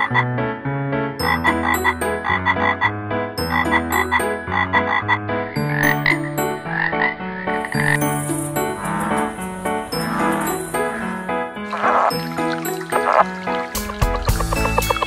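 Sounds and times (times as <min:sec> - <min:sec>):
frogs croaking: 0:00.0 - 0:00.2, 0:03.5 - 0:15.0.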